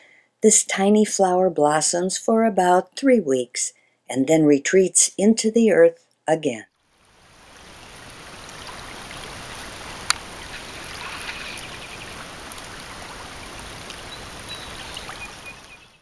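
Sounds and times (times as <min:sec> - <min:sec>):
river rushing over riffles: 0:07.0 - 0:16.0.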